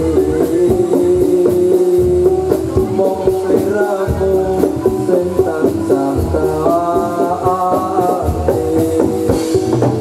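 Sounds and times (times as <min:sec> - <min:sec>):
drum beat: 0:00.0 - 0:10.0
pitched melody line: 0:00.0 - 0:10.0.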